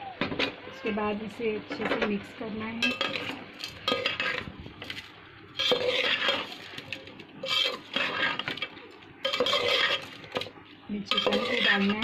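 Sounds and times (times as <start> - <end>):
metal spoon scraping steel pot: 2.8 - 4.5, 5.6 - 10.5, 11.1 - 12.0.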